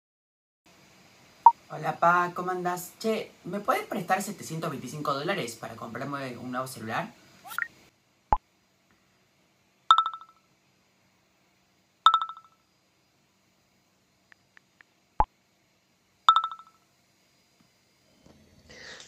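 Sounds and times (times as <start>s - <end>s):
message chimes: 9.9s - 10.3s, 12.1s - 12.5s, 16.3s - 16.7s.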